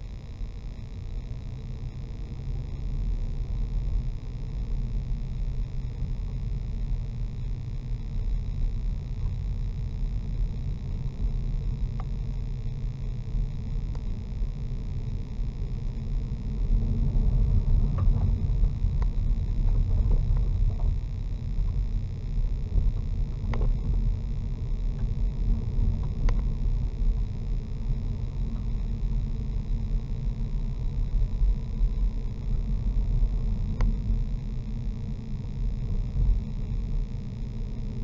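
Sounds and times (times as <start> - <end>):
engine and tyre rumble: 16.6 - 28.8.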